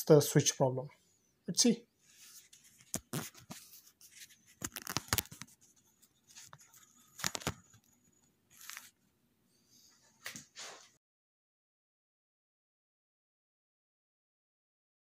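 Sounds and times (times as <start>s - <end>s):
short rustles: 9.9s - 11.0s.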